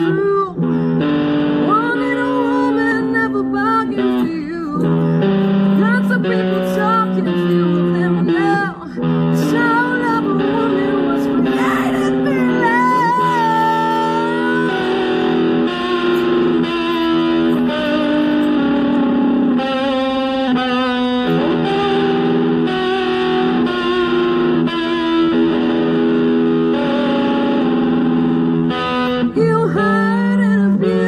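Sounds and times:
distorted electric guitar: 0:00.0 - 0:31.0
woman singing a note: 0:09.4 - 0:15.4.

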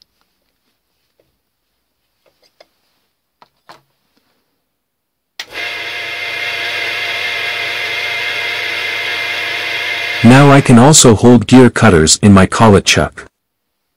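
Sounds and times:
milling machine spindle running: 0:05.4 - 0:10.8.

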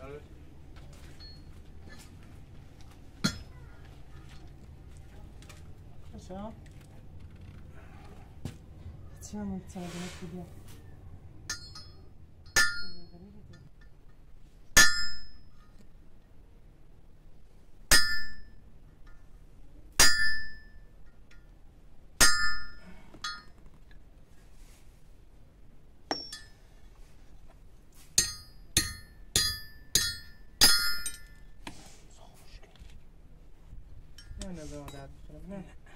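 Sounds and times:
hammer striking metal rod: 0:11.5 - 0:13.1, 0:14.8 - 0:15.5, 0:17.9 - 0:18.6, 0:20.0 - 0:20.8, 0:22.2 - 0:23.4, 0:26.1 - 0:26.6, 0:28.2 - 0:31.4.

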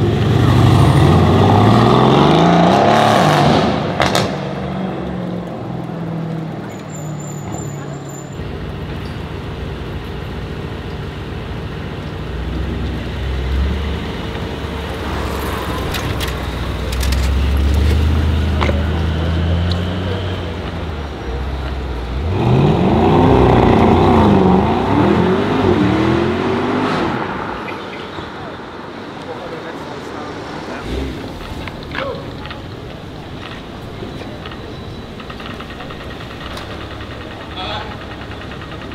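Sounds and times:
car engine accelerating: 0:00.0 - 0:06.8, 0:08.4 - 0:27.7.

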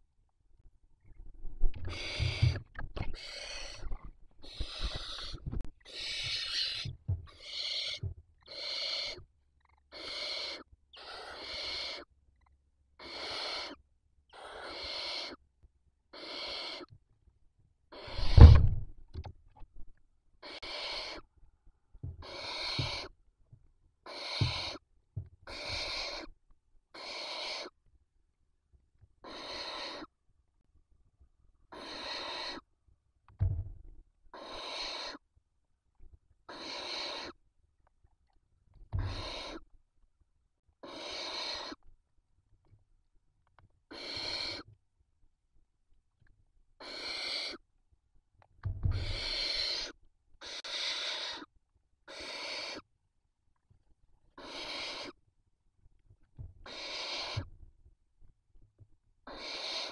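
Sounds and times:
owl chicks hissing: 0:01.7 - 0:09.2, 0:09.9 - 0:12.1, 0:13.0 - 0:13.8, 0:14.4 - 0:15.4, 0:16.1 - 0:16.9, 0:17.9 - 0:18.6, 0:20.4 - 0:21.2, 0:22.2 - 0:23.1, 0:24.0 - 0:24.8, 0:25.5 - 0:26.3, 0:26.9 - 0:27.7, 0:29.2 - 0:30.1, 0:31.7 - 0:32.7, 0:34.3 - 0:35.2, 0:36.5 - 0:37.4, 0:39.0 - 0:39.6, 0:40.8 - 0:41.8, 0:43.9 - 0:44.7, 0:46.8 - 0:47.6, 0:48.9 - 0:51.5, 0:52.1 - 0:52.8, 0:54.4 - 0:55.2, 0:56.6 - 0:57.5, 0:59.3 - 0:59.9
dull low thumps: 0:18.1 - 0:19.0.

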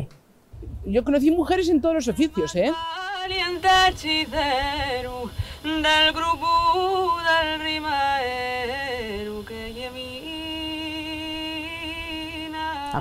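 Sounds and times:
person singing long notes: 0:02.4 - 0:13.0.

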